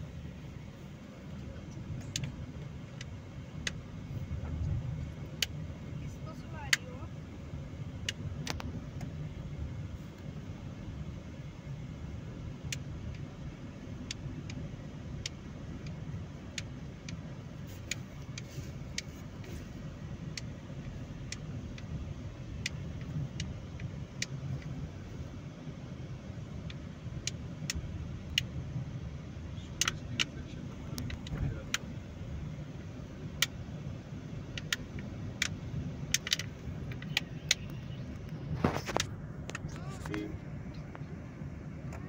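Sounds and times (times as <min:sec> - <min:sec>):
car road and engine rumble: 0:00.0 - 0:42.0
sharp clicks: 0:29.7 - 0:32.0, 0:34.4 - 0:41.0.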